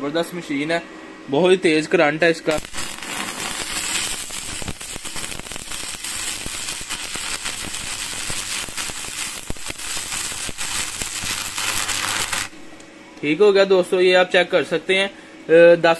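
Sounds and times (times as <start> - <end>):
welding arc sizzling and popping: 2.4 - 12.9.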